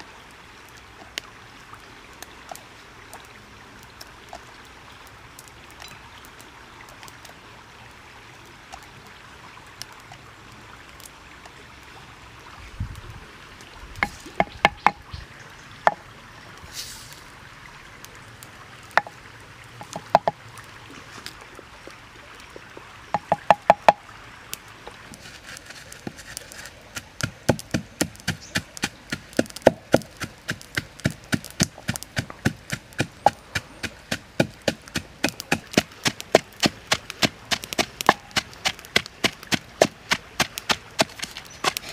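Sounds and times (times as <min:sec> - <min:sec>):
wooden pestle pounding in mortar: 0:27.2 - 0:41.9.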